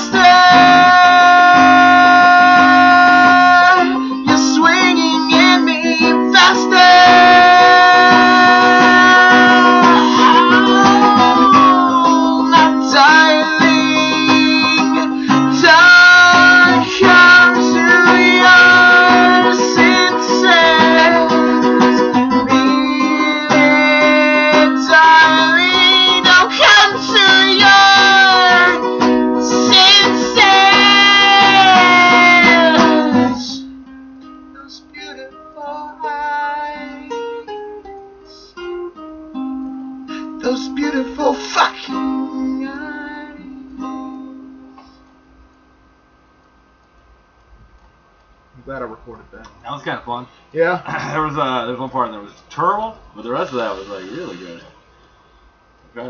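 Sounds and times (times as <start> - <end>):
man singing: 0.0 - 33.7, 34.5 - 37.2, 40.2 - 44.4
acoustic guitar strumming: 0.0 - 45.8.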